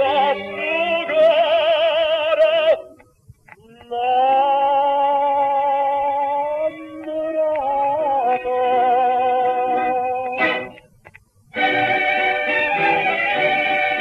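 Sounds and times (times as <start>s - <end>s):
instrumental held chords: 6.2s - 14.0s.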